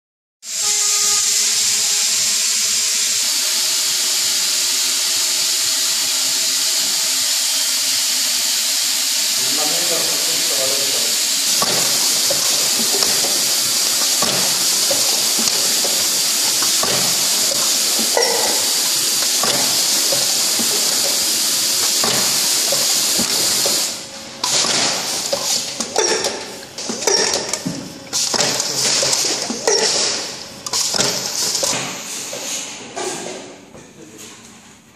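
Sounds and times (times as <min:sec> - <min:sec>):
machine air hiss: 0:00.5 - 0:32.8
mechanical clicks and knocks: 0:11.5 - 0:32.0.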